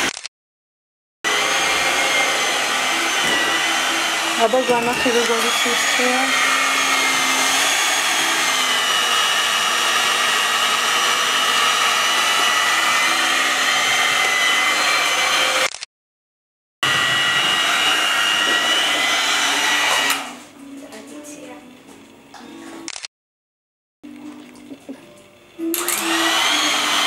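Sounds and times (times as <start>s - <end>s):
electric hand mixer whining: 1.3s - 15.8s, 16.8s - 20.6s, 24.2s - 27.0s.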